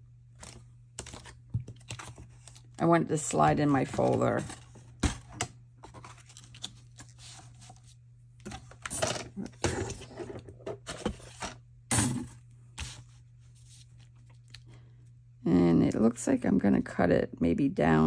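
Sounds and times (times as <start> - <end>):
low steady hum: 0.0 - 18.0
card rustling and scraping: 5.8 - 11.6.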